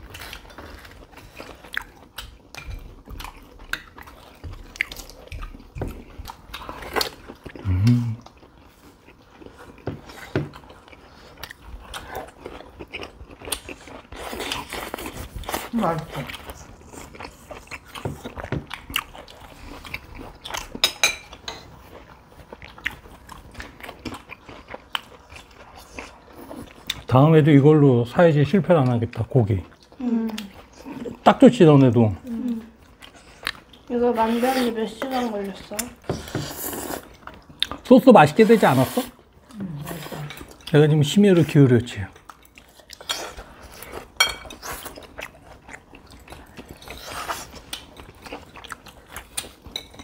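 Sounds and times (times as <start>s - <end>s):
chewing and crunching: 0.0s - 38.6s, 39.2s - 50.0s
cutlery clinking on plates: 44.2s - 44.6s.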